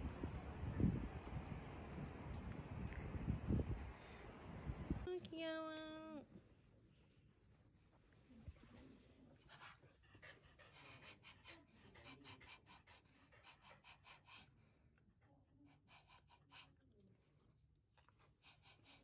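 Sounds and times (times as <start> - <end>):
small dog panting rapidly: 9.3 - 17.2, 18.0 - 19.0.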